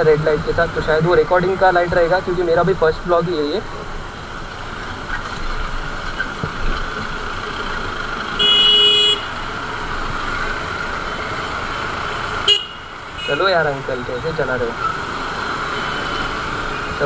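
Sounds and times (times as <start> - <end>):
traffic and motorcycle noise: 0.0 - 17.0
vehicle horn honk: 8.4 - 9.3, 12.4 - 13.4.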